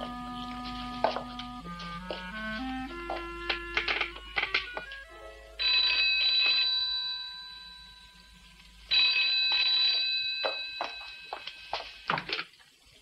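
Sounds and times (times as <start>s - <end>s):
music notes: 0.0s - 9.7s
telephone bell ringing: 5.6s - 12.1s.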